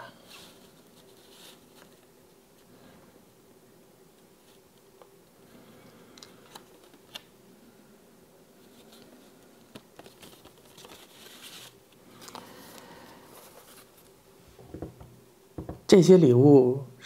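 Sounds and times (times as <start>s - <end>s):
paper rustling: 0.3s - 2.1s, 8.6s - 14.2s.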